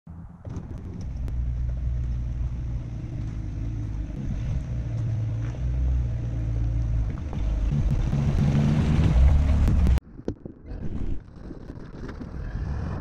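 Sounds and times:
car engine idling: 0.1 - 10.0.

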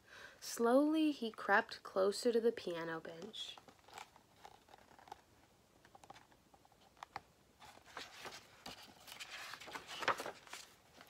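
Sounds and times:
book page turning: 3.1 - 5.3, 5.9 - 11.0.

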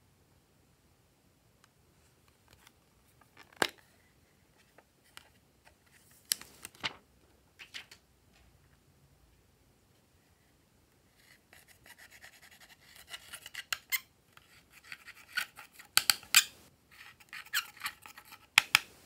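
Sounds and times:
plastic palette clicking: 16.0 - 16.5, 18.6 - 18.9.

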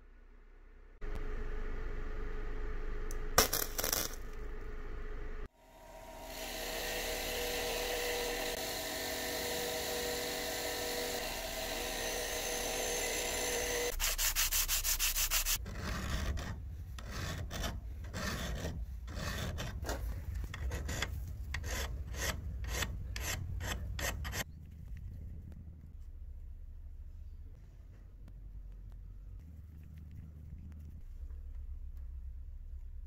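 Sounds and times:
buffing wheel whirring: 4.4 - 14.0
hand file strokes on metal: 6.3 - 24.5
metal rubbing on sandpaper: 13.9 - 24.5.

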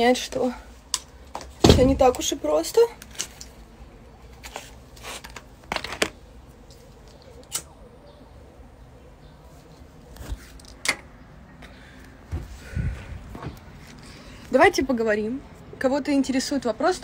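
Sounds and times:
cigarette pack rustling: 4.3 - 7.6.

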